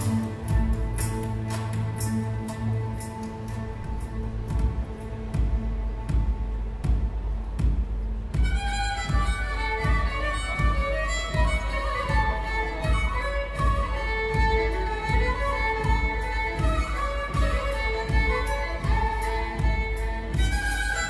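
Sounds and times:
symphony orchestra playing: 0.0 - 7.6
steady low beat: 0.0 - 21.0
violin melody: 0.0 - 21.0.

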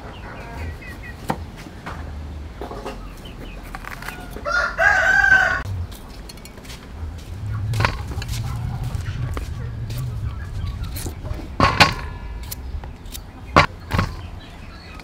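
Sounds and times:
rooster crowing: 3.8 - 5.7.

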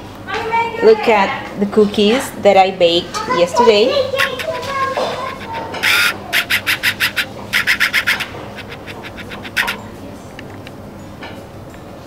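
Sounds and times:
rasping scraping strokes: 4.2 - 9.8.

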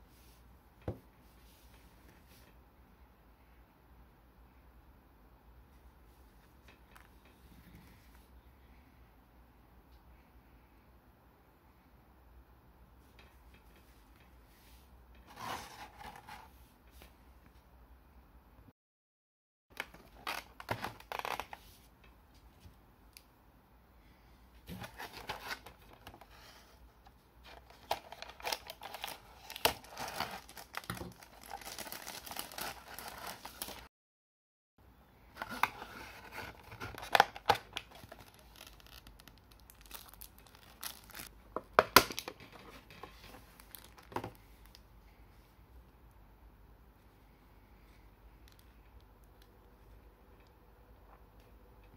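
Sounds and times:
packaging rustling and crinkling: 19.8 - 21.6, 24.7 - 26.3, 27.5 - 33.9, 35.4 - 41.3, 42.1 - 44.8.

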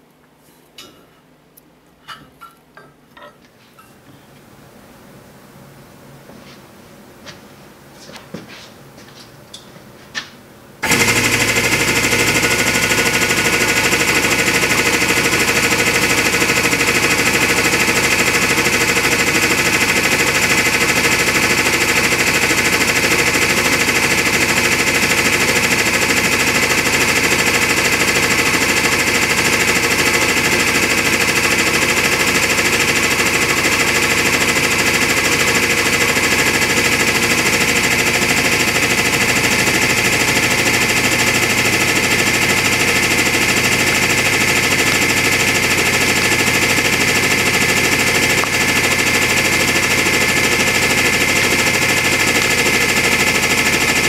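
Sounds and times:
hydraulic pump motor running: 10.8 - 54.0.

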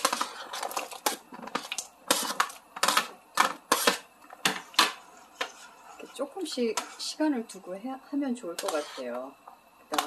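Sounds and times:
metal spoon clattering and scraping: 8.6 - 9.2.

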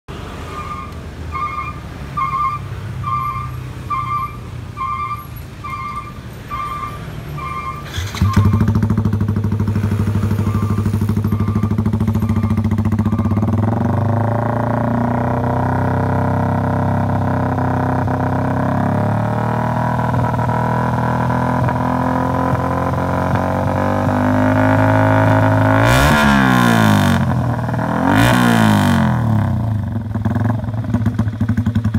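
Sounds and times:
motorcycle exhaust drone: 0.3 - 31.9
regular beep: 0.5 - 8.8, 10.2 - 13.6.

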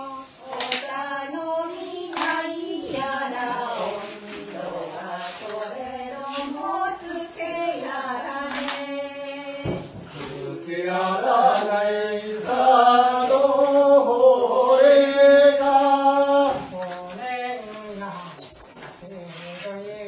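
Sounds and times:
voices chanting slow song: 0.0 - 20.0
single thump: 9.6 - 10.4.

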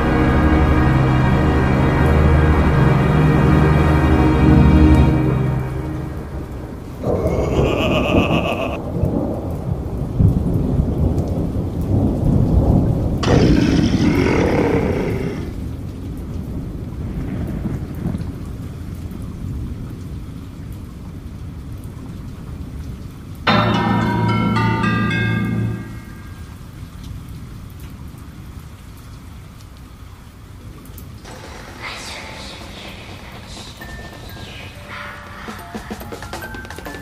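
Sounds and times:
steady rain: 0.0 - 37.0
thunder rumbling: 6.4 - 19.8, 31.2 - 36.7.

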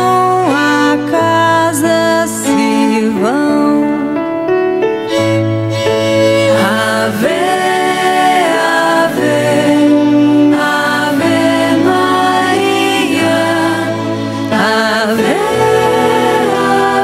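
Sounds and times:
held instrumental accompaniment: 0.0 - 17.0
voices singing a hymn: 6.1 - 17.0.

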